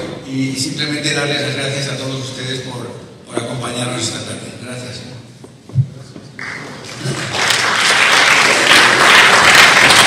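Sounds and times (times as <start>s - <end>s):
audience applause: 6.4s - 10.0s.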